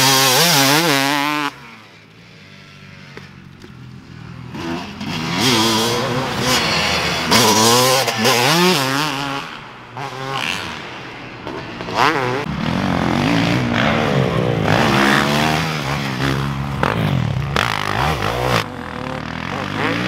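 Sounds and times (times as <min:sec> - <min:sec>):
dirt bike engine revving: 0:00.0 - 0:20.0.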